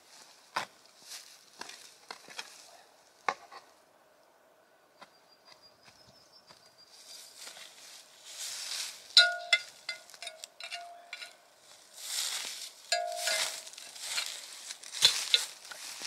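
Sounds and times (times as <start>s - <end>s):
rustling in dry grass and soil: 0.0s - 3.9s, 5.8s - 16.0s
sharp metallic clinks: 9.2s - 11.4s, 12.9s - 14.3s.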